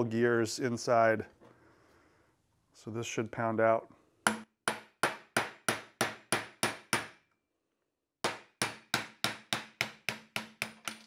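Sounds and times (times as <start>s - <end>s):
hammer striking steel punch: 4.3s - 7.2s, 8.2s - 10.9s.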